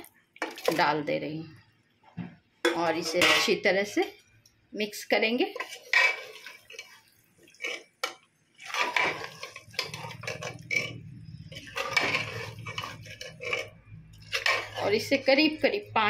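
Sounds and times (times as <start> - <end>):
ladle scraping metal pot: 2.7 - 3.7, 5.5 - 15.8
low steady hum: 9.2 - 16.0.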